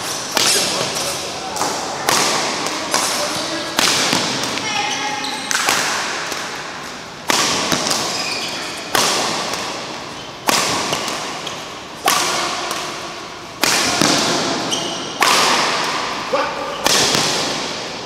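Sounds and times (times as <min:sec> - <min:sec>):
racket hitting shuttlecock: 0:00.0 - 0:18.0
shoes squeaking on court: 0:02.9 - 0:05.8, 0:07.7 - 0:11.9, 0:14.4 - 0:15.2.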